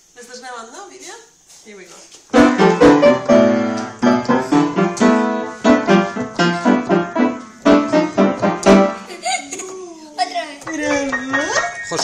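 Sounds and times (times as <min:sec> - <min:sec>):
upright piano notes and chords: 0:02.3 - 0:09.1, 0:10.7 - 0:12.0.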